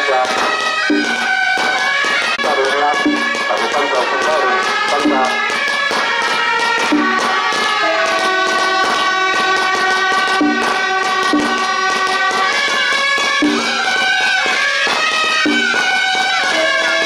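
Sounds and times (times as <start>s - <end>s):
drum beats: 0.0s - 17.0s
shawms playing reedy melody: 0.0s - 17.0s.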